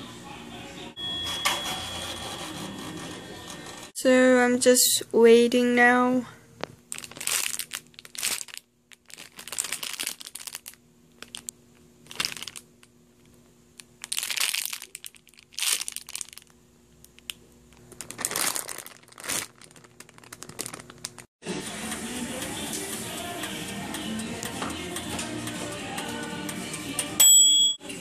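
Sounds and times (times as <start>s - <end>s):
plastic bags crinkling: 6.9s - 12.9s, 13.8s - 16.6s, 17.2s - 21.3s.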